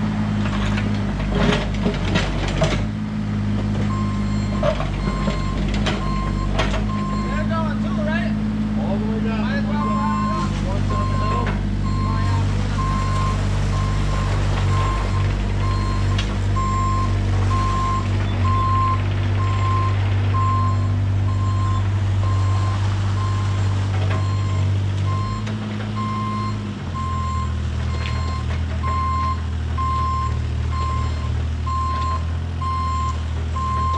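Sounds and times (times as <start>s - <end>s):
diesel engine running: 0.0s - 33.9s
reversing alarm beeping: 3.9s - 7.6s, 9.8s - 23.6s, 24.2s - 33.9s.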